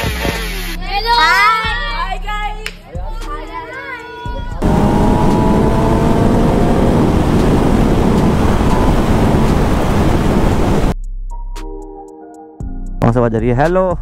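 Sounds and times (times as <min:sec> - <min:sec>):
motorcycle engine: 0:04.6 - 0:11.0
wind rushing over microphone: 0:04.6 - 0:11.0.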